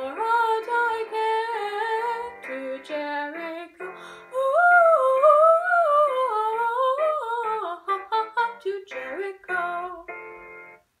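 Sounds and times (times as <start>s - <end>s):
girl singing: 0.0s - 10.2s
instrumental accompaniment: 8.3s - 11.0s.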